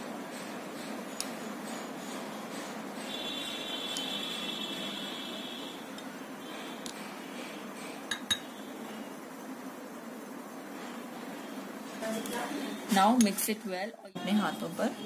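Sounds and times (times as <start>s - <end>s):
glass and spoon clinking: 8.1s - 8.5s.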